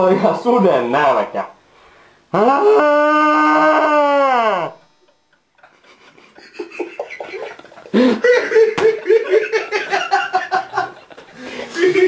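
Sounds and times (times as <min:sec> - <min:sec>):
man laughing: 0:05.0 - 0:12.0.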